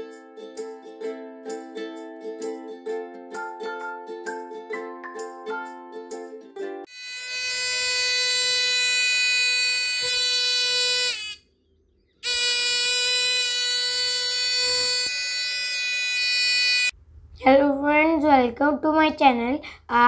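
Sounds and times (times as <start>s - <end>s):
electronic alarm buzzer: 6.9s - 11.5s, 12.2s - 17.0s.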